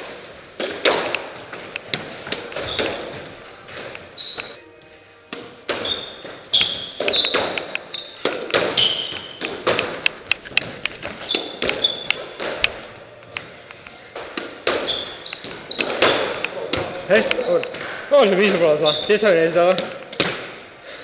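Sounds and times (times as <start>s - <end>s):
sneakers squeaking on wooden floor: 0.0s - 4.6s, 5.3s - 20.5s
squash ball knocks: 0.6s - 4.0s, 6.6s - 13.5s, 14.2s - 17.9s, 19.7s - 20.6s.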